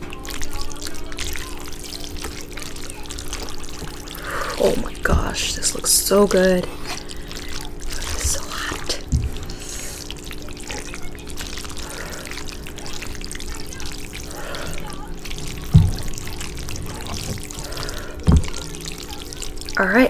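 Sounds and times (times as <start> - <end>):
pasta squelching in sauce: 0.0 - 20.0.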